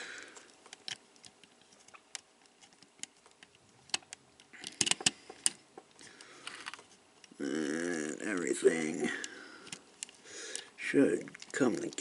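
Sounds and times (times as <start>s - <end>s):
plastic toy parts clicking: 0.6s - 5.6s, 9.6s - 12.0s.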